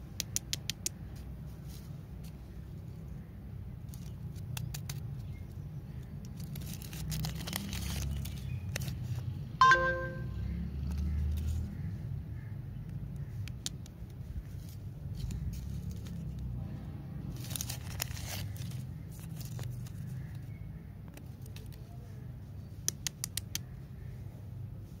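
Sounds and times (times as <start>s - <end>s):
candy wrapper crinkling: 6.2s - 9.3s, 17.3s - 20.0s
paper tearing: 6.4s - 9.0s.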